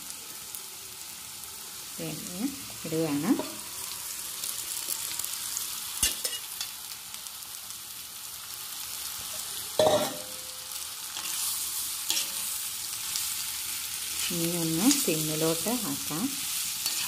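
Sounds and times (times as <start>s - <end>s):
frying sizzle in wok: 0.0s - 17.0s
metal utensils clanking on pan: 6.0s - 6.7s, 9.8s - 10.6s.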